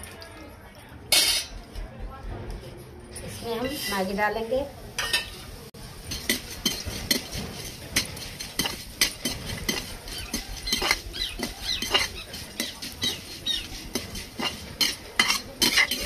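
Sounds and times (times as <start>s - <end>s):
metal spatula scraping a pan: 3.4s - 4.2s, 5.0s - 16.0s.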